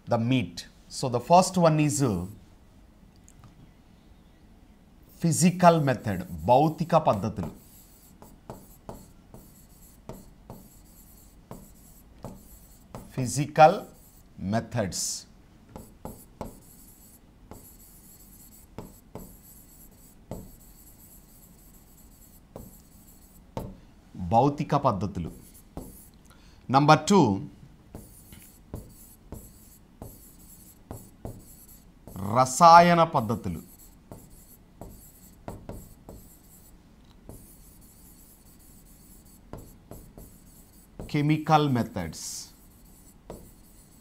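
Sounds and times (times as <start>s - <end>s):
writing tip rubbing on board: 5.8s - 13.2s, 13.8s - 14.3s, 15.8s - 23.7s, 25.3s - 26.1s, 28.0s - 32.4s, 33.3s - 41.2s, 42.5s - 44.0s
writing tip tapping: 8.2s - 10.9s, 11.5s - 13.1s, 15.7s - 16.8s, 20.3s - 20.6s, 27.9s - 32.2s, 34.1s - 36.4s, 39.5s - 41.2s.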